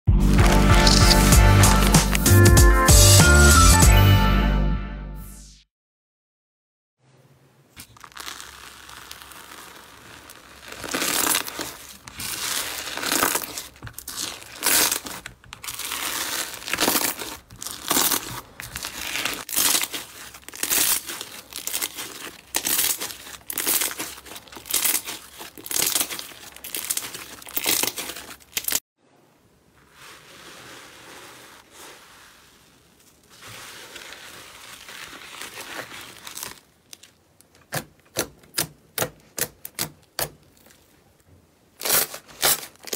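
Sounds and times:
slime squishing by hand: 7.8s - 28.8s, 29.7s - 41.2s.

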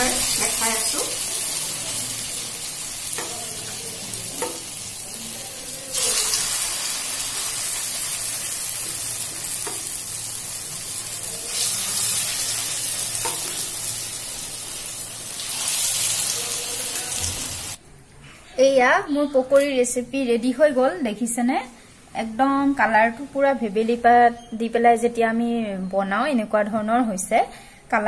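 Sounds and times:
batter sizzling in hot oil: 0.0s - 17.8s.

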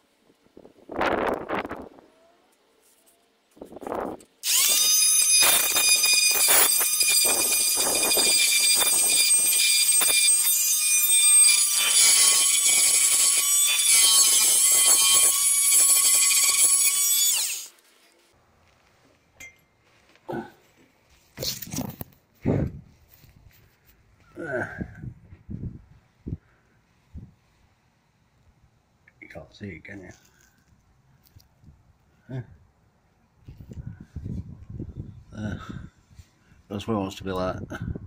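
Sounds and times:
oscillating multi-tool whining: 3.8s - 17.8s.

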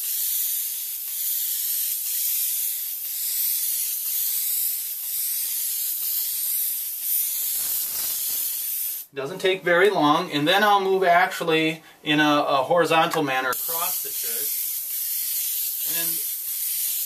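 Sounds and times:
airbrush spraying hiss: 0.0s - 9.1s, 13.5s - 17.0s.

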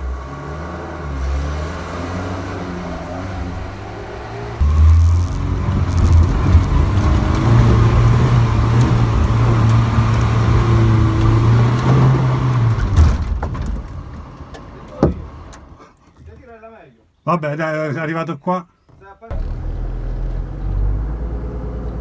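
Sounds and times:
engine revving at high revs: 0.0s - 13.0s.

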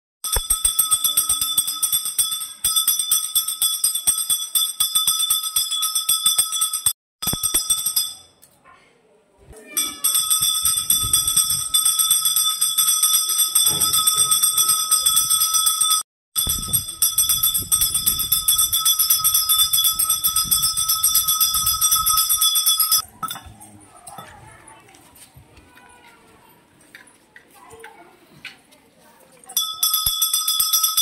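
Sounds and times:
brass bell rung rapidly: 0.2s - 8.2s, 9.8s - 23.0s, 29.6s - 31.0s.

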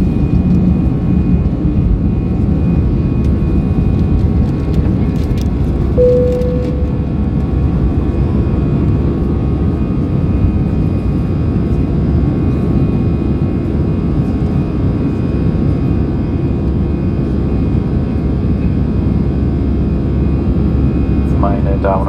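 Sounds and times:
multi-tone engine whine: 0.0s - 22.0s.

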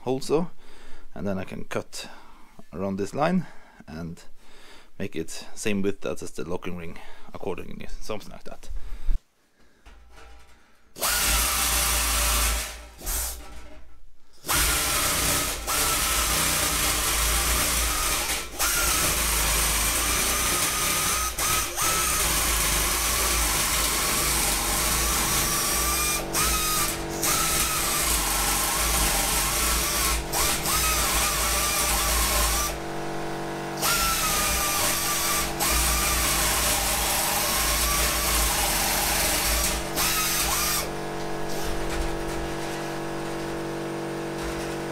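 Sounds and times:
pneumatic nibbler cutting sheet metal: 10.1s - 44.9s.

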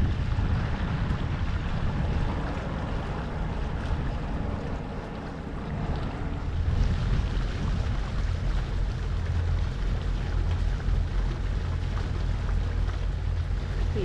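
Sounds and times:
deep uneven rumble: 0.0s - 14.0s
water rushing along hull: 0.0s - 14.0s
wind buffeting microphone: 0.0s - 14.0s.

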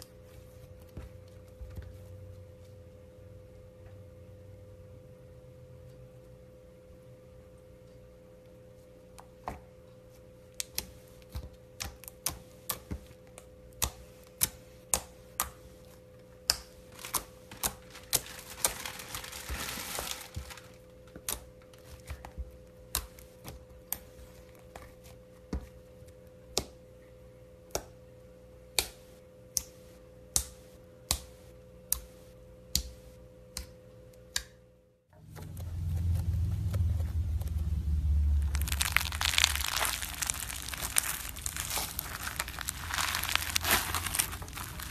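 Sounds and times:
foam bead slime crunching: 16.9s - 20.8s, 36.7s - 44.9s.

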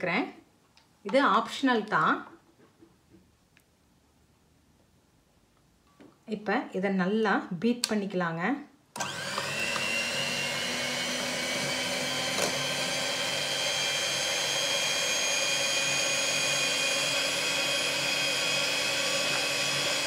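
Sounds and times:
electric hand mixer whipping cream: 9.0s - 20.0s.

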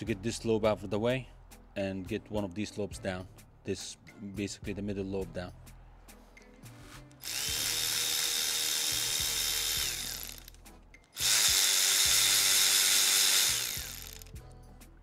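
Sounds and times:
electric ratchet whining: 7.2s - 14.4s.

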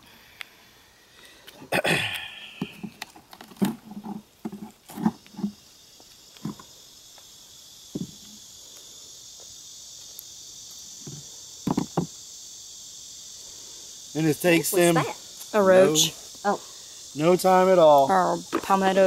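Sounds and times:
high-pitched insect drone: 0.0s - 19.0s
wooden frames knocking: 11.1s - 12.1s.

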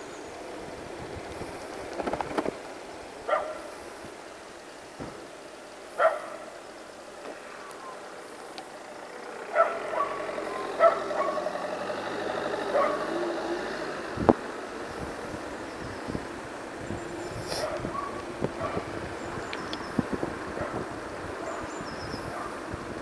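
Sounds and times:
background noise: 0.0s - 23.0s
dog barking: 3.3s - 3.7s, 6.0s - 6.5s, 9.5s - 11.5s, 12.7s - 13.1s, 17.6s - 18.8s, 22.3s - 22.6s.

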